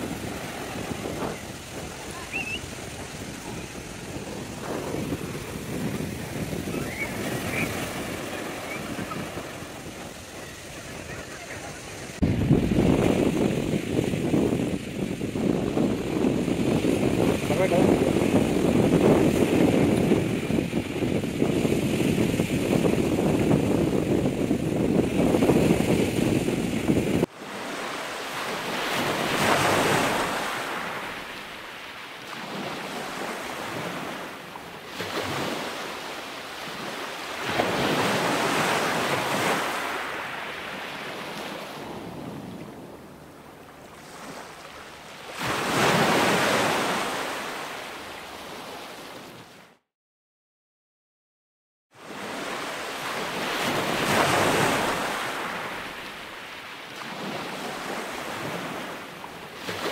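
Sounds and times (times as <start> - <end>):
wind buffeting microphone: 0.0 - 27.3
waves crashing on rocks: 0.0 - 43.2, 44.0 - 48.8, 52.3 - 59.9.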